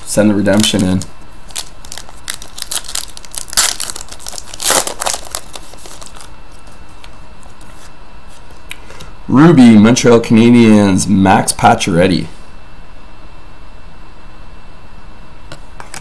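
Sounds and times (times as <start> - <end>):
foil wrapper crinkling: 0.0 - 7.8
cards rustling: 0.0 - 8.6
foil wrapper ripping: 0.4 - 6.3.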